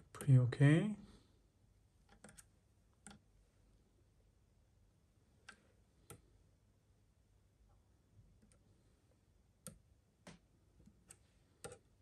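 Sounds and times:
probe tips clicking on terminals: 2.0 - 3.3, 9.6 - 12.0.

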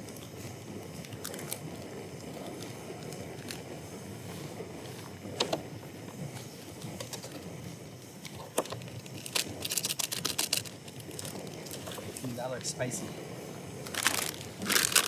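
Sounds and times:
foil lid crinkling: 8.6 - 12.0, 13.8 - 15.0.

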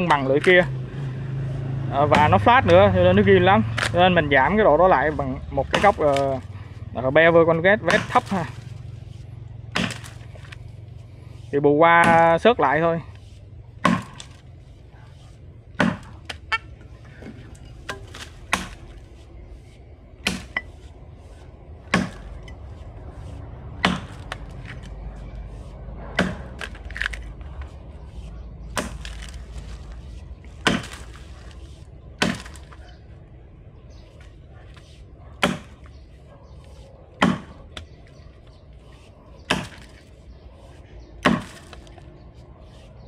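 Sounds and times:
axe chopping into wood: 2.0 - 2.9, 3.6 - 4.2, 5.0 - 6.5, 7.5 - 8.7, 9.6 - 10.6, 12.0 - 12.4, 13.8 - 14.4, 15.7 - 16.5, 17.8 - 19.0, 20.2 - 20.8, 21.8 - 22.5, 23.7 - 24.9, 26.1 - 27.3, 28.6 - 29.4, 30.4 - 31.6, 32.2 - 32.8, 35.4 - 36.0, 37.2 - 38.0, 39.4 - 40.1, 41.2 - 42.0.

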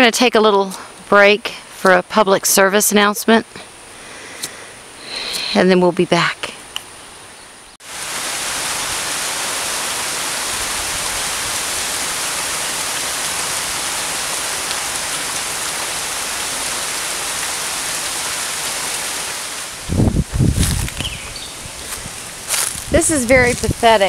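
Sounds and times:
rain on grass and trees: 7.8 - 24.0.

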